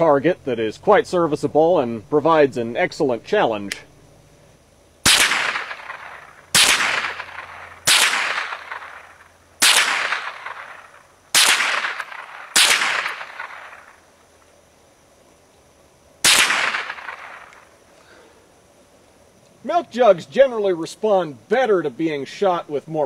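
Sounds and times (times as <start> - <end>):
rifle shots: 5.0 - 14.0, 16.2 - 17.7.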